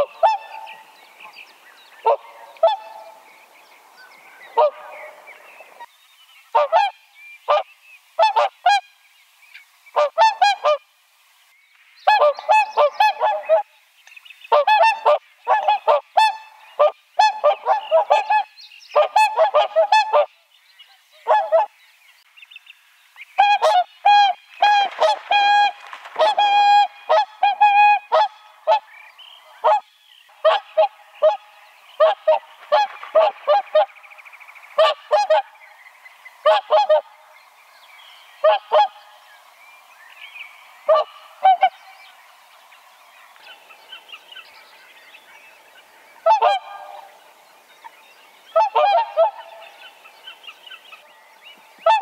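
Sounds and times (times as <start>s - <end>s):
swans calling: 0.0s - 3.3s, 4.1s - 5.9s, 6.5s - 8.9s, 9.6s - 10.8s, 12.0s - 13.7s, 14.5s - 20.3s, 21.2s - 21.7s, 23.4s - 35.6s, 36.4s - 37.3s, 38.4s - 39.3s, 40.7s - 44.6s, 45.6s - 47.9s, 48.5s - 51.1s, 51.8s - 52.0s.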